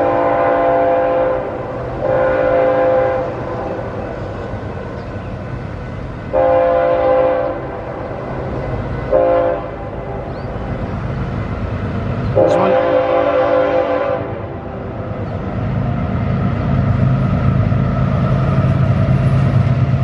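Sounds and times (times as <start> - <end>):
train air horn blasts: 0.0 - 3.9, 6.3 - 8.0, 9.1 - 10.0, 12.4 - 14.7
low rumble of train: 0.0 - 20.0.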